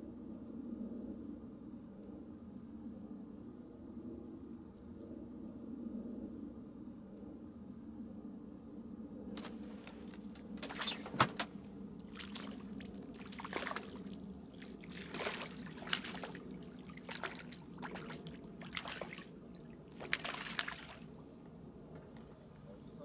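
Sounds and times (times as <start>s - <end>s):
steady low hum: 0.0s - 23.0s
water splashing and trickling: 9.4s - 21.4s.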